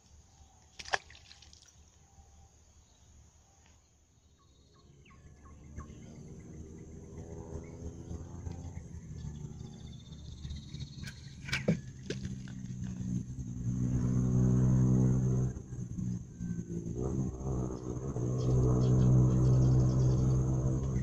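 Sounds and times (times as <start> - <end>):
water splash: 0.7 - 1.8
boat engine droning: 5.1 - 21.0.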